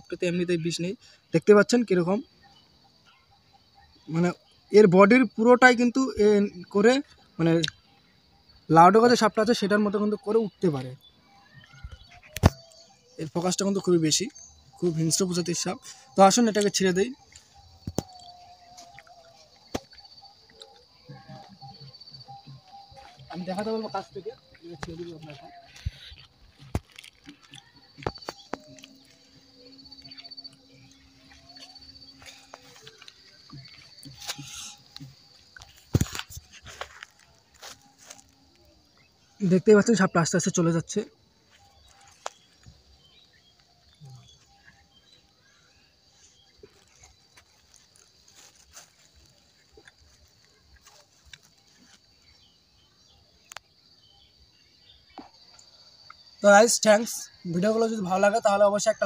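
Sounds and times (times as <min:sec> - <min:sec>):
insect trill: 0:00.0 - 0:59.0
rustling in dry leaves: 0:30.0 - 0:38.7, 0:46.2 - 0:52.4.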